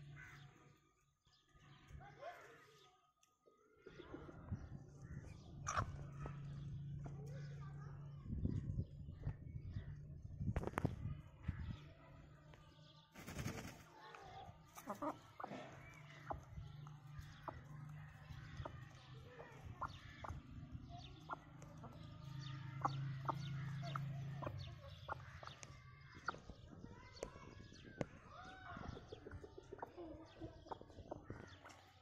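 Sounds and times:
beaks pecking grain: 13.2s - 26.6s
chickens clucking softly: 14.7s - 18.8s, 28.9s - 31.8s.

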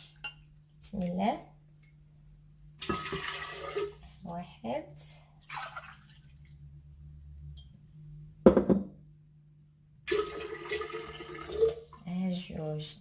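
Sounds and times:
water pouring into vessel: 2.8s - 4.0s, 5.4s - 7.1s, 10.0s - 12.0s.

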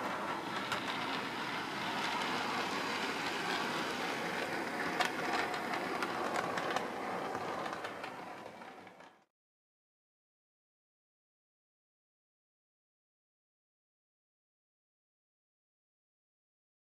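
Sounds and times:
model train running on track: 0.0s - 9.3s
wheels clicking over rail joints: 0.0s - 9.3s.

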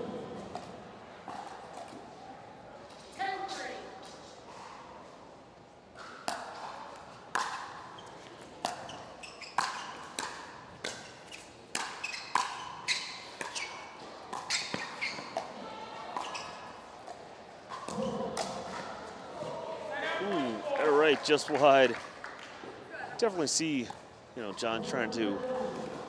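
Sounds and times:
ball bouncing on court: 6.2s - 19.5s.

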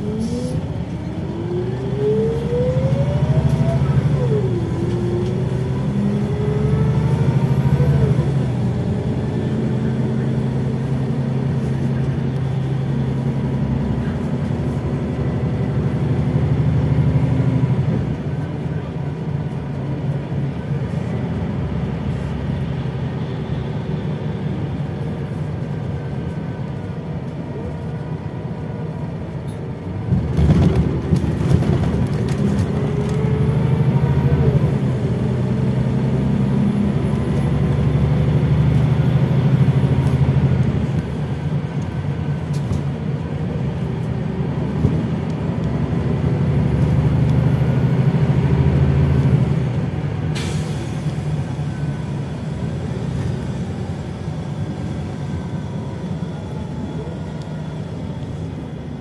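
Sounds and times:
bus engine drone: 0.0s - 59.0s.

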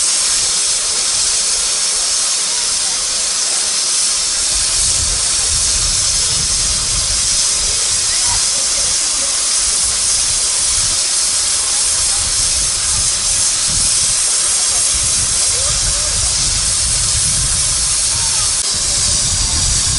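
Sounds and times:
steam hissing: 0.0s - 19.9s.

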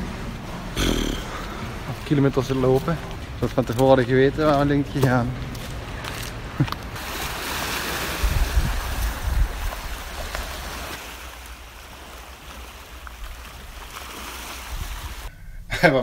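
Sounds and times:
waves washing against rocks: 7.0s - 15.3s
wind gusts on microphone: 7.9s - 10.6s, 14.6s - 15.3s.

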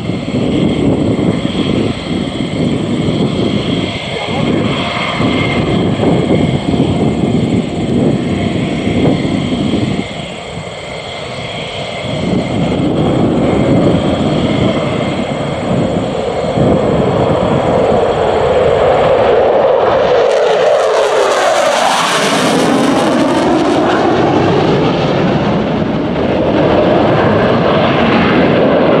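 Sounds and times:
jet engines roaring: 0.0s - 29.0s
jet passing whoosh: 0.0s - 29.0s.

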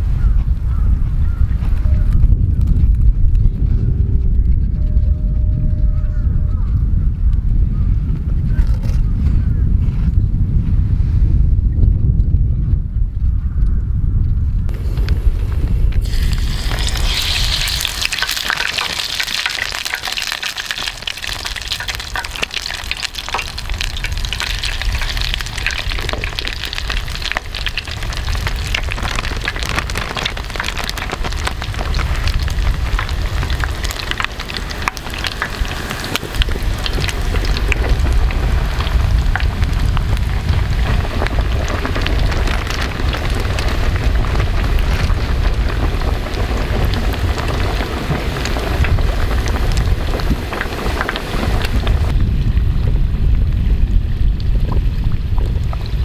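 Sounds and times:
oil sizzling and crackling: 14.7s - 56.0s.

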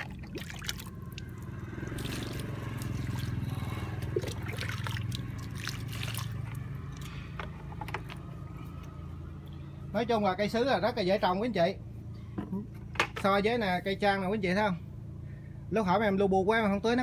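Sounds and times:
liquid trickling onto soil: 0.0s - 7.3s
steady low hum: 0.0s - 17.0s.

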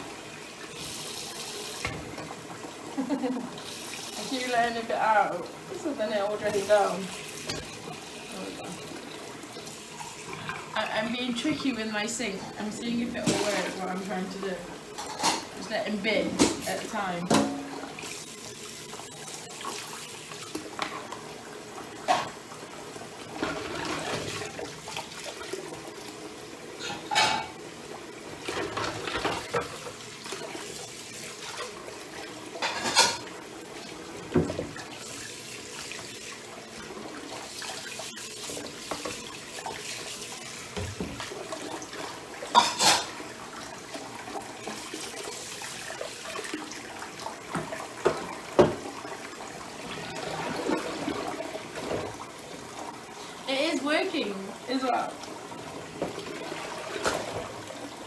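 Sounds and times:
water running in sink: 0.0s - 58.0s
dishes clattering: 14.9s - 15.6s, 17.3s - 17.8s, 26.8s - 27.6s, 32.6s - 33.3s, 42.4s - 43.2s.

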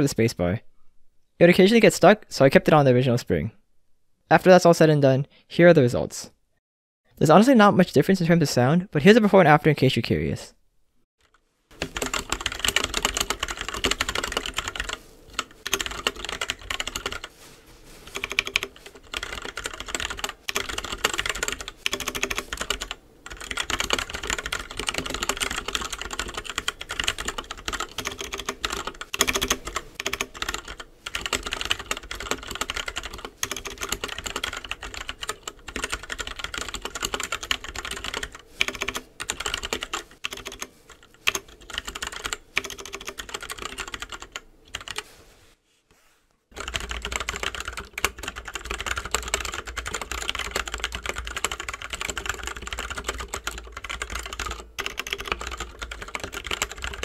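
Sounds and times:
mechanical keyboard typing: 11.3s - 17.3s, 18.2s - 45.0s, 46.6s - 57.0s.

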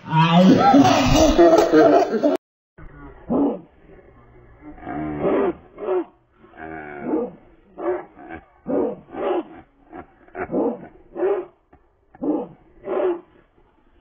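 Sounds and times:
dog barking: 7.0s - 9.6s, 10.4s - 11.5s, 12.2s - 13.4s.

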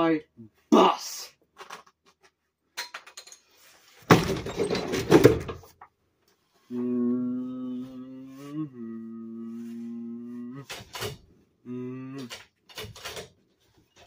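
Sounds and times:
person humming: 6.7s - 10.9s, 11.6s - 12.4s.

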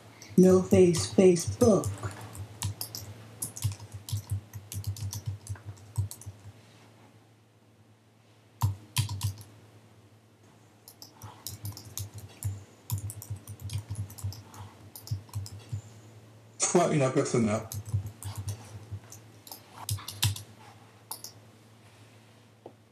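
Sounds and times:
keyboard typing: 0.2s - 6.5s, 8.6s - 9.5s, 10.9s - 15.9s, 17.6s - 20.5s, 21.1s - 21.4s
loud keyboard clicks: 1.7s - 6.5s, 8.6s - 9.5s, 10.9s - 15.8s, 17.6s - 20.5s, 21.1s - 21.4s.

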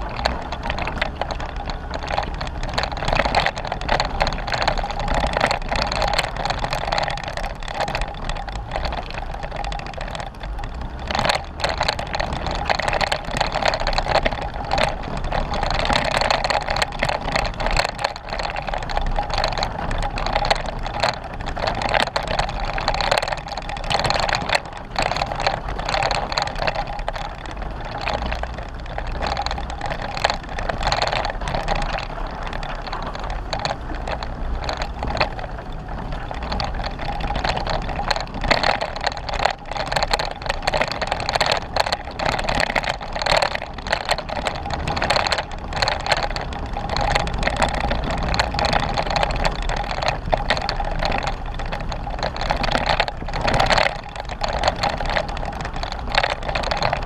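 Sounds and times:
engine and tyre noise: 0.0s - 57.0s
knocks and rattles: 0.0s - 57.0s.

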